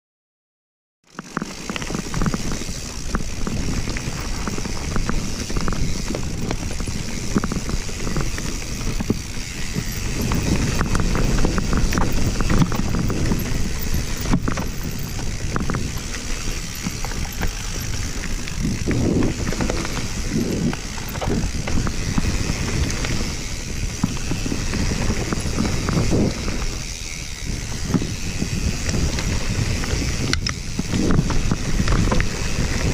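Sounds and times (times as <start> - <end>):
bike rattling over bumps: 1.1 - 32.9
tyres rumbling over dirt: 1.1 - 32.9
wind rushing on microphone: 1.4 - 32.9.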